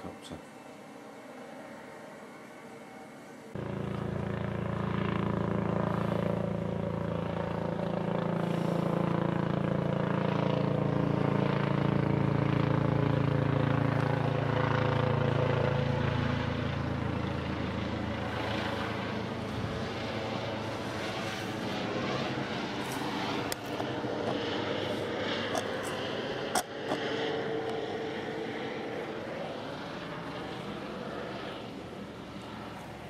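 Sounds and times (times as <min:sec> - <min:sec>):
helicopter engine and rotor hum: 0:00.0 - 0:33.0.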